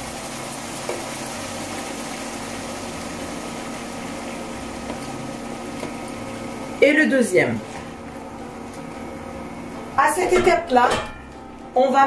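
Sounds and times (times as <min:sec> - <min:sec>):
water bubbling in a pan: 0:00.0 - 0:06.8
hob humming: 0:00.0 - 0:12.0.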